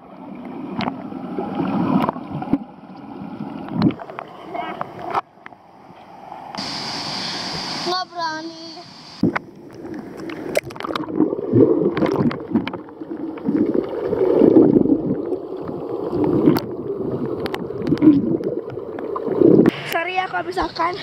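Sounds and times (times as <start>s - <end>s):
bubbles gurgling: 0.0s - 4.4s, 9.2s - 19.8s
underwater rushing: 0.0s - 21.0s
sharp clicks underwater: 0.4s - 1.0s, 1.8s - 6.7s, 9.2s - 20.9s.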